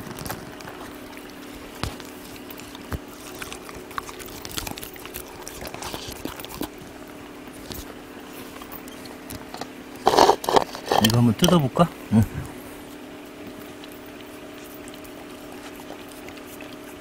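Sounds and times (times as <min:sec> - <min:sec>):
wet smacks and small clicks: 0:00.0 - 0:08.0
dogs chewing meat: 0:00.0 - 0:17.0.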